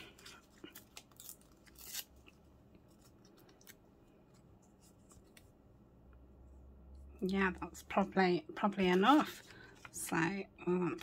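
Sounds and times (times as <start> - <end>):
paper rustling: 8.8 - 10.1.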